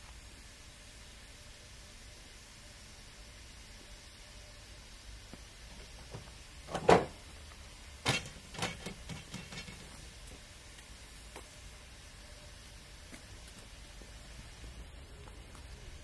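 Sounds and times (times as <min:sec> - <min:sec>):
loud metallic clunk: 0:06.7 - 0:07.2, 0:08.0 - 0:09.8
lighter metal clanks and knocks: 0:08.0 - 0:10.0.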